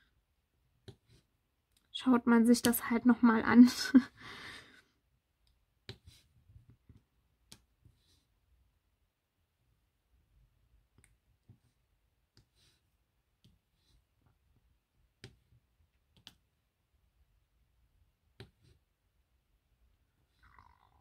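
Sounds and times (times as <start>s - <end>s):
small clicks and taps of pen: 6.6s - 7.7s, 15.2s - 16.5s.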